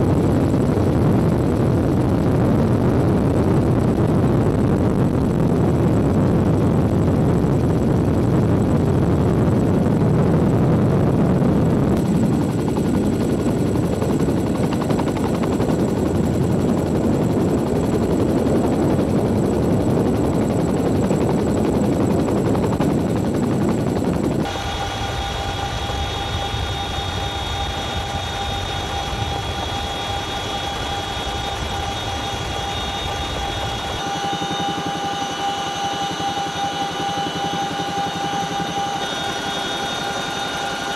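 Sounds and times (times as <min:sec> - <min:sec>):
helicopter rotor and engine noise: 0:00.0 - 0:40.9
high-pitched whining tones: 0:24.5 - 0:40.9.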